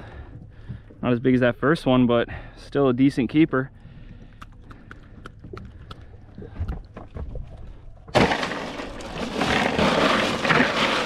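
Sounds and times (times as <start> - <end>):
ice clattering in a cooler: 8.1 - 11.0.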